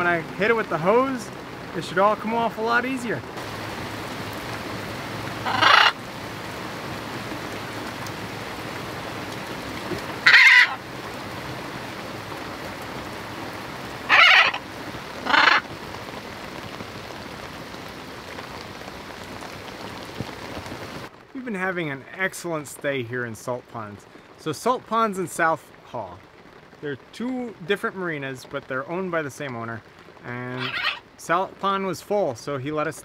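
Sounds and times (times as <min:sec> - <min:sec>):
heavy rain on deck: 0:00.0 - 0:33.0
macaw squawking: 0:05.4 - 0:06.0, 0:10.2 - 0:10.8, 0:14.0 - 0:15.7, 0:30.5 - 0:31.0.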